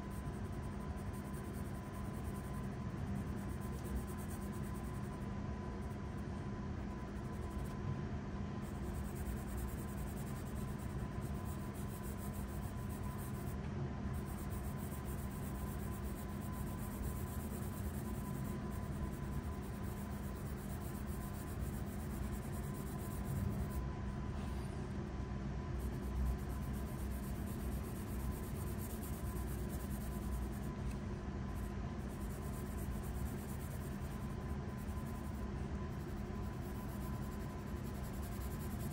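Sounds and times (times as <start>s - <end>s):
steady low hum: 0.0s - 38.9s
pencil scratching on paper: 25.8s - 38.9s.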